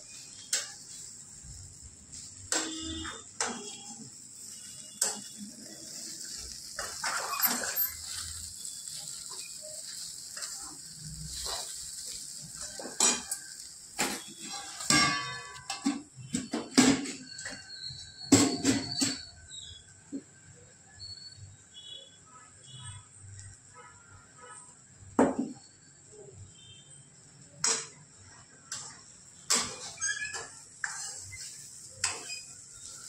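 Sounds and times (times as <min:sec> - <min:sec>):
steady high hiss: 0:00.0 - 0:15.9
metal spoon scraping a frying pan: 0:00.0 - 0:19.3, 0:28.7 - 0:33.0
metal lid clank: 0:14.0 - 0:17.2.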